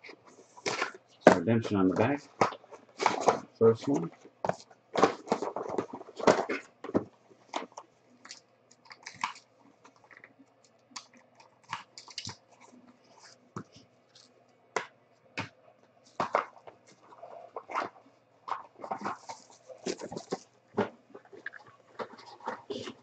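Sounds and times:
cardboard boxes handled and opened: 0.0s - 7.8s, 16.1s - 23.0s.

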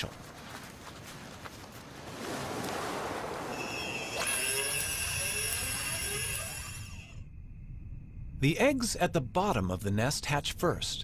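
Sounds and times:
rising glides: 2.0s - 7.3s
high shimmering tones: 3.5s - 7.3s.

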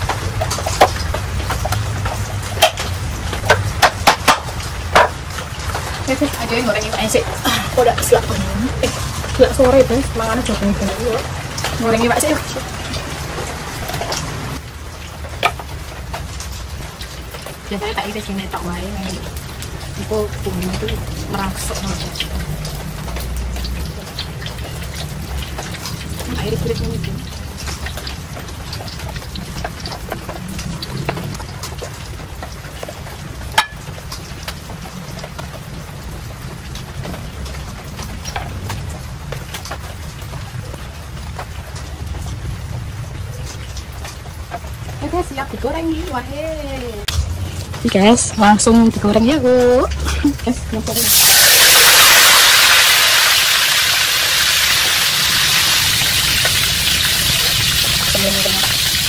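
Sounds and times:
fish deep-frying in hot oil: 0.0s - 59.0s
steady low rumble: 19.2s - 51.0s.

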